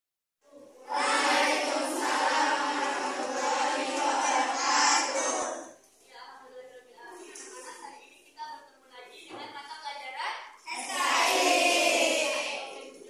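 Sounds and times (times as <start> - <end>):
many voices singing together: 0.8 - 5.8, 10.7 - 13.0.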